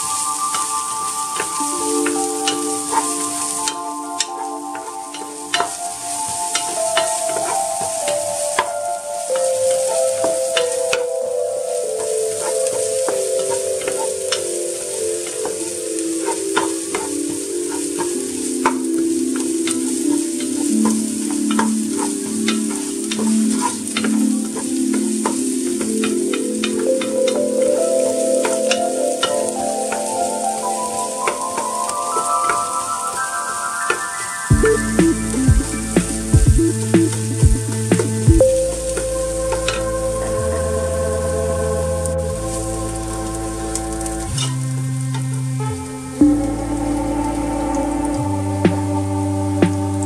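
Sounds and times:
background music: 0.0s - 50.0s
steady low tones: 34.5s - 50.0s.

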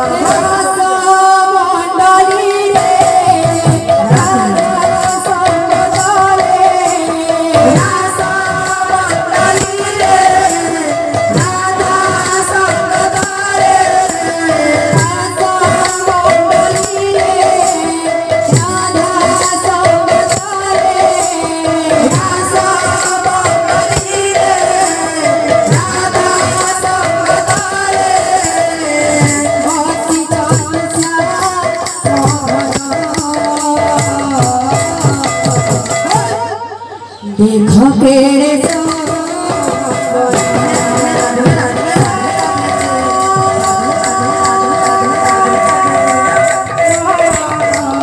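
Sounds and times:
jingling percussion: 0.0s - 36.6s, 38.3s - 48.0s
voices singing devotional melody: 0.0s - 48.0s
hand-beaten barrel drums: 2.4s - 36.4s.

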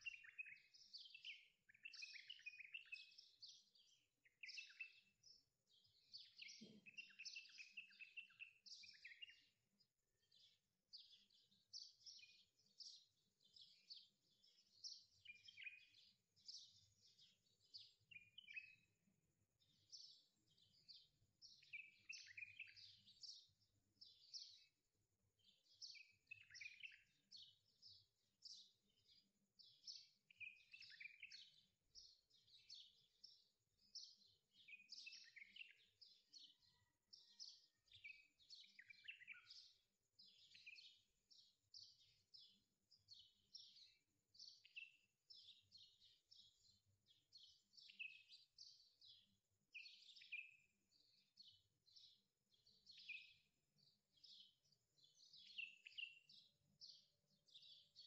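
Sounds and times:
birds chirping: 0.0s - 9.6s, 10.2s - 19.0s, 25.4s - 49.2s.

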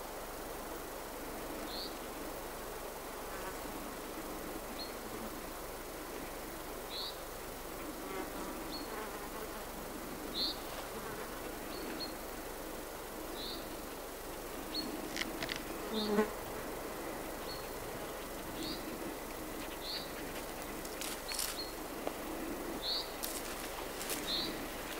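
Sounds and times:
forest background: 0.0s - 24.9s
insects buzzing: 0.0s - 24.9s.

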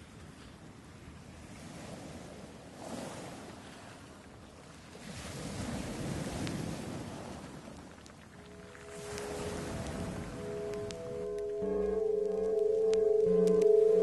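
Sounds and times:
sea surf rushing onto beach: 8.4s - 14.0s.

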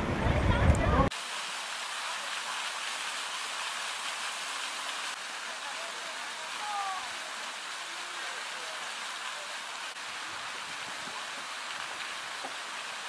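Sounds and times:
running water rushing: 0.0s - 13.0s.

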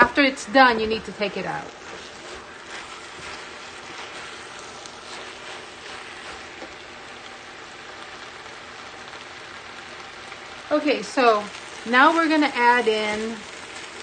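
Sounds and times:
spatula scraping pan: 0.0s - 7.0s
rice frying with steady sizzle: 0.0s - 14.0s.

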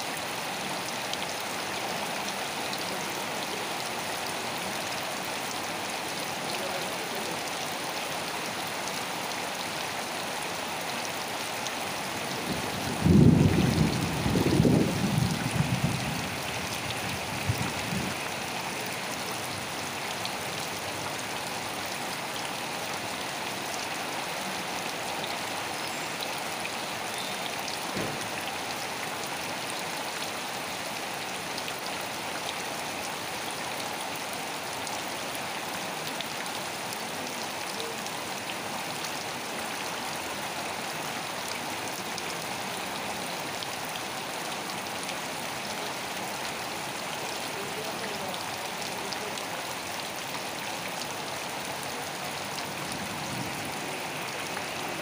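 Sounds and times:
steady rain falling: 0.0s - 55.0s.

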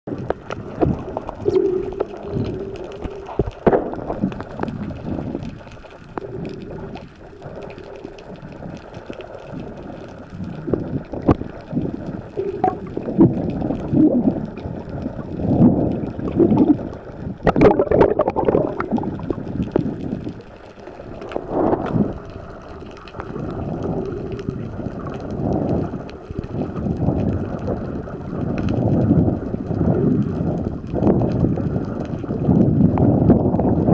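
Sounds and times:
underwater gurgling: 0.1s - 33.9s.

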